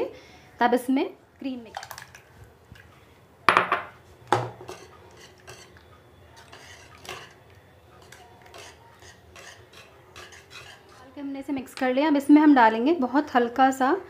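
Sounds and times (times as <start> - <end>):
whisk clinking against saucepan: 4.5 - 11.2.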